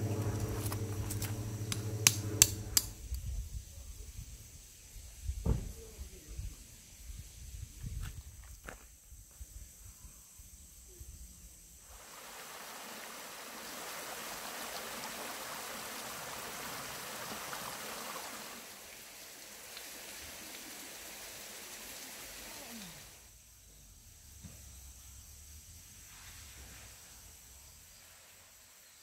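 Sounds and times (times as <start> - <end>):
stream water rushing over stones: 11.9 - 23.2.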